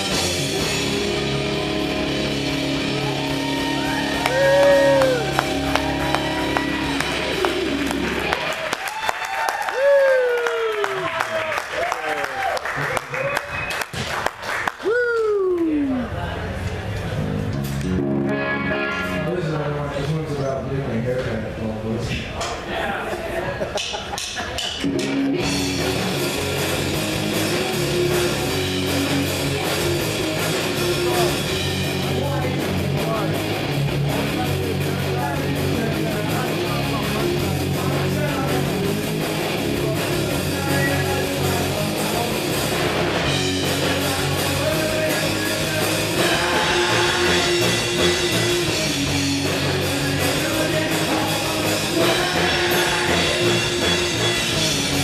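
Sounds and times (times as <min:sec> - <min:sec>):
drum kit: 0:00.0 - 0:11.1, 0:23.8 - 0:55.0
electric guitar: 0:00.0 - 0:11.3, 0:16.9 - 0:20.0, 0:24.8 - 0:55.0
bass guitar: 0:00.0 - 0:22.4, 0:24.5 - 0:55.0.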